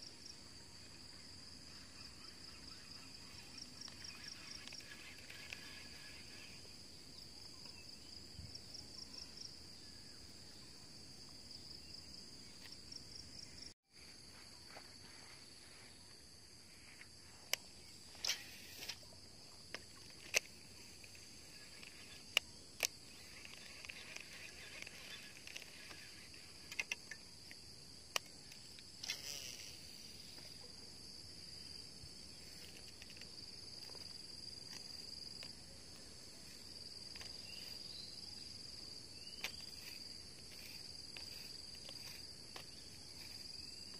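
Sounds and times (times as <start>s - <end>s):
insects chirring: 0.0s - 43.9s
sharp clicks: 21.8s - 29.4s.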